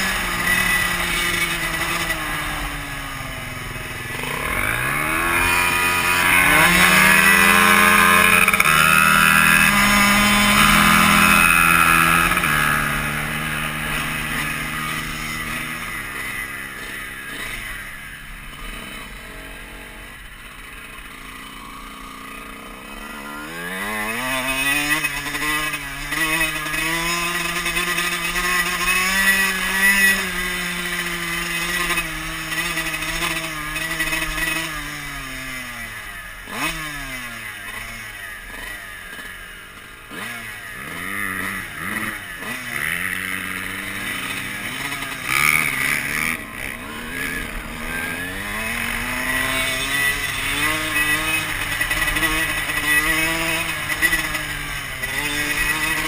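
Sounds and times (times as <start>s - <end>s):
dirt bike engine accelerating: 0.0s - 56.0s.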